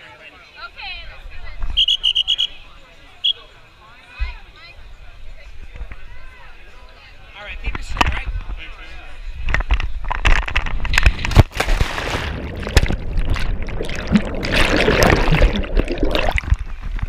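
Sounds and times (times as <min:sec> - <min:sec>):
air buffeting microphone: 0:09.3 - 0:17.0
loud plunge into water: 0:11.2 - 0:16.6
muffled underwater bubbles gurgling: 0:12.4 - 0:16.7.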